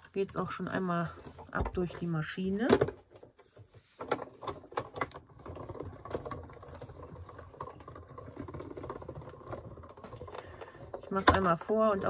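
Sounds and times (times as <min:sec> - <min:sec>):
machine rattling: 0:04.4 - 0:12.0.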